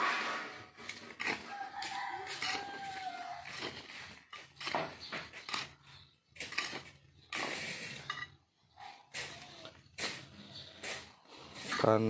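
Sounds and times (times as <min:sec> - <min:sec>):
metal scoop scraping gravelly soil: 0:00.0 - 0:08.4, 0:09.1 - 0:12.0.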